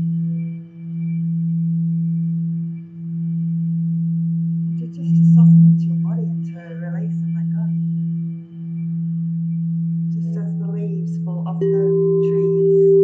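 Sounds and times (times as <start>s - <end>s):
singing bowl low tone: 0.0s - 13.0s.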